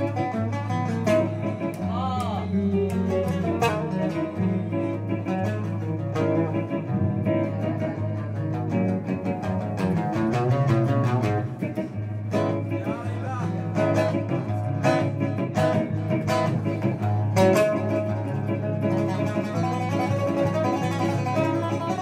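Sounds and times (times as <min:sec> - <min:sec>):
oud plucked solo: 0:00.0 - 0:22.0.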